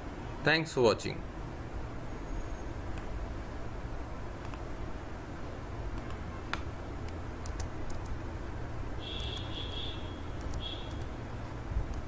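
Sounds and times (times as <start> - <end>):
low background hum: 0.0 - 12.0
mouse and keyboard clicks: 4.4 - 4.6, 6.0 - 8.2, 10.4 - 11.1.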